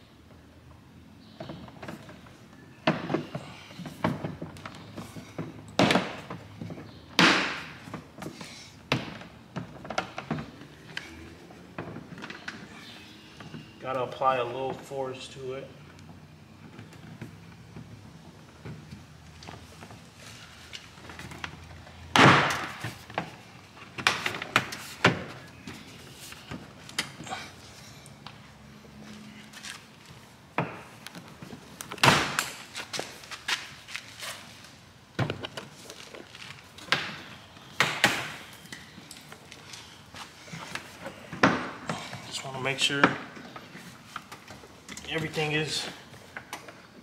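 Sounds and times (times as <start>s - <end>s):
loud plastic thunk: 22.1s - 22.9s.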